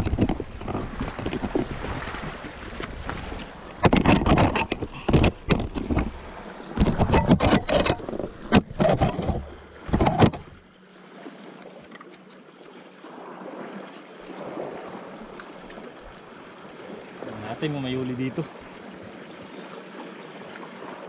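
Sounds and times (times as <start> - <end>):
wind buffeting microphone: 0.0 - 10.6.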